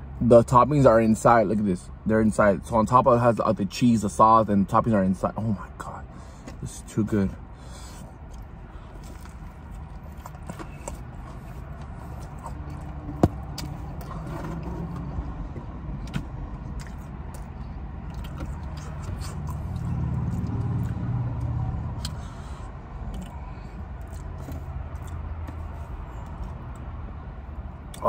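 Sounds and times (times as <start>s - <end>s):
low hum inside car: 0.0s - 28.0s
chewing and mouth sounds: 7.8s - 14.6s, 16.0s - 22.4s, 23.0s - 26.9s.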